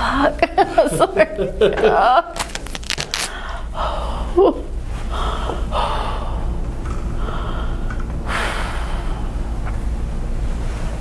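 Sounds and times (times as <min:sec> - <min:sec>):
person breathing hard: 0:03.2 - 0:09.6.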